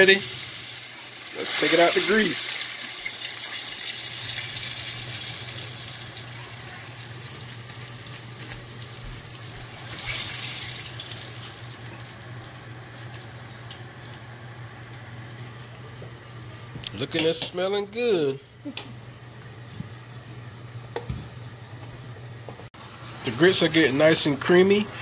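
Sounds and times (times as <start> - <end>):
hot oil sizzling in a pot: 0.0 - 13.9.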